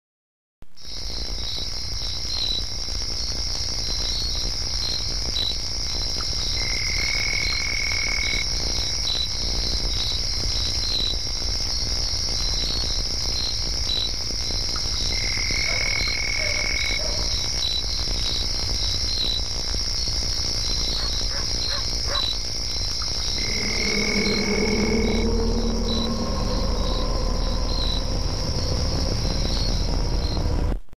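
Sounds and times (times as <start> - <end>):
insects trilling: 0.8 - 30.7
long high insect note: 23.0 - 30.8
low rumble: 23.0 - 30.9.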